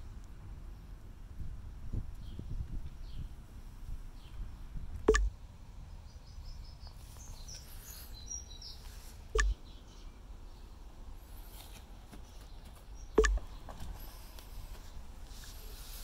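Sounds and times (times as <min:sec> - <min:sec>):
faint bird chirps: 0:06.0 - 0:10.8
sharp knocks: 0:13.2 - 0:13.5.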